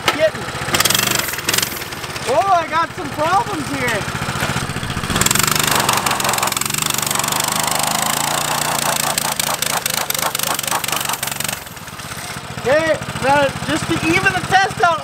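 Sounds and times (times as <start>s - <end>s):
small motorbike engine revving: 0.0s - 15.0s
tire spinning on pavement hiss: 4.1s - 12.5s.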